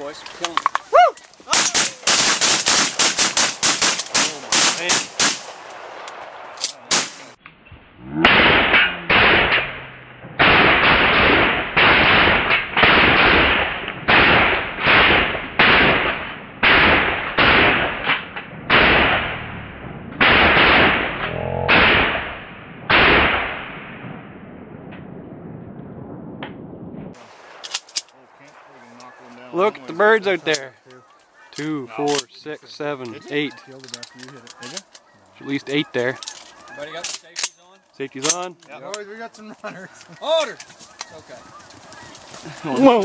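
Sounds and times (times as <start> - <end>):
shotgun blasts: 1.6 - 7.4, 8.2 - 19.6, 20.2 - 24.0.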